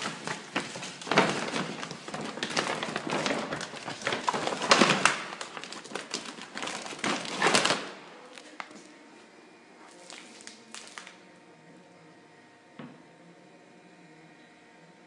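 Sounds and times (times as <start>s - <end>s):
packaging rustling and crinkling: 0.0s - 8.9s, 9.9s - 11.2s.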